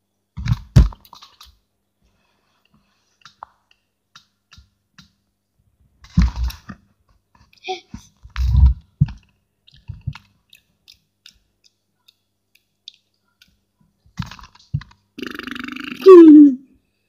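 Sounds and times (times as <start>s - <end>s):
man belching: 15.2s - 16.2s.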